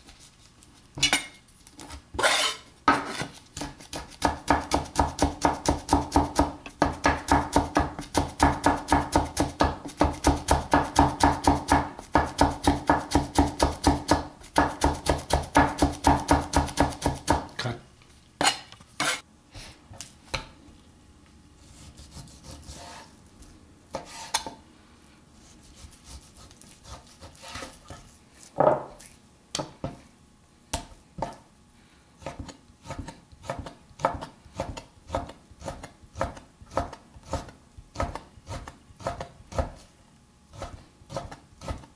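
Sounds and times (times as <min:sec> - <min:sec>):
cleaver chopping on wooden board: 0:02.9 - 0:17.5
knife strokes and knocks: 0:23.9 - 0:24.6, 0:25.4 - 0:29.2.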